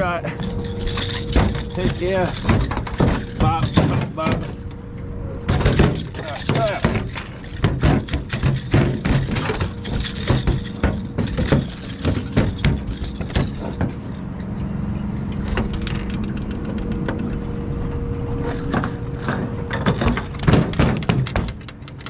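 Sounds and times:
motor running steadily: 0.0s - 21.6s
clicks and knocks: 18.6s - 22.0s.

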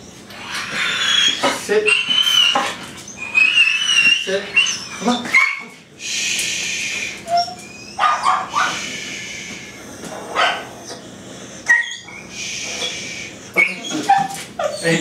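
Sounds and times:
dog barking: 8.0s - 8.8s, 10.3s - 10.7s.

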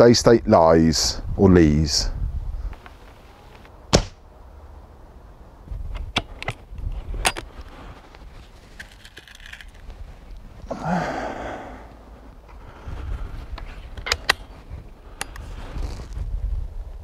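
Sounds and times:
air rifle shot: 3.9s - 4.2s
metallic clicks of rifle lever: 13.5s - 14.5s.

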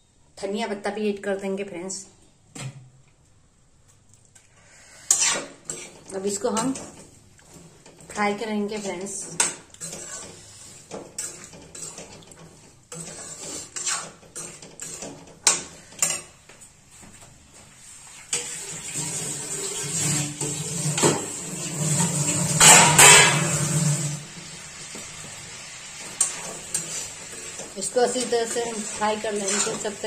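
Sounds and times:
metal spatula scraping a pan: 4.8s - 16.4s, 18.0s - 30.0s.

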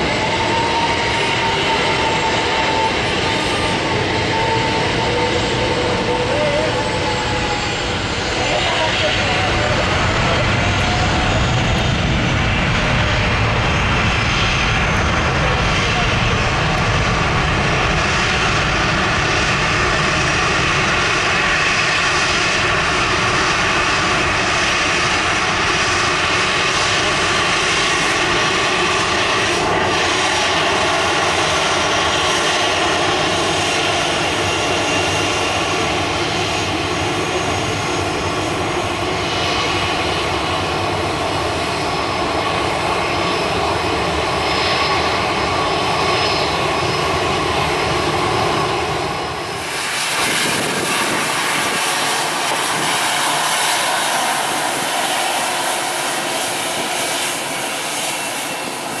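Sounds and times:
jet engines at takeoff: 0.0s - 59.0s.

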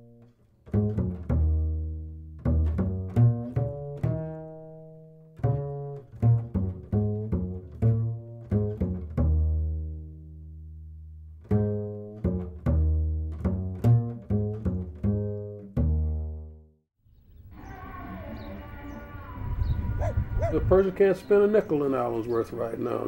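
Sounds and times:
low plucked string notes: 0.0s - 16.8s.

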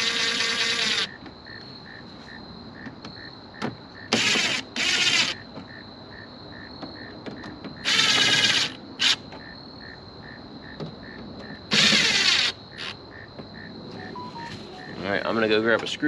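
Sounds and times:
cordless driver whirring: 0.0s - 1.2s, 11.7s - 12.6s.

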